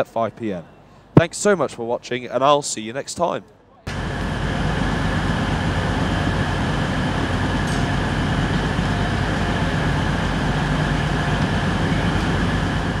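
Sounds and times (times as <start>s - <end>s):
train diesel engines idling: 3.9s - 13.0s.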